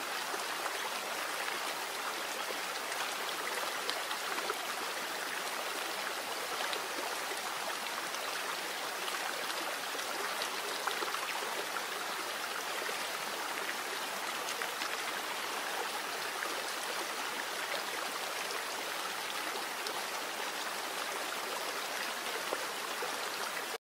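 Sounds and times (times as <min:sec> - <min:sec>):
stream flowing: 0:00.0 - 0:23.8.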